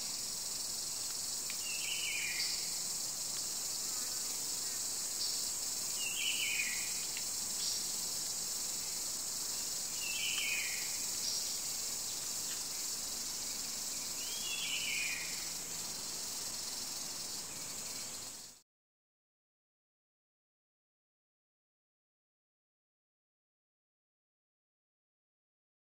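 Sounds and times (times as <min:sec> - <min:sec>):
insects chorus: 0:00.0 - 0:18.6.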